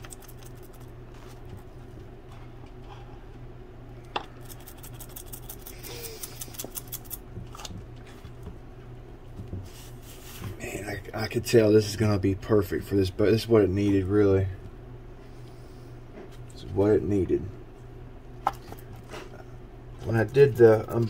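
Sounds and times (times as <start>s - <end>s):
low steady hum: 0.0s - 21.0s
brush scratching strokes: 9.6s - 10.6s.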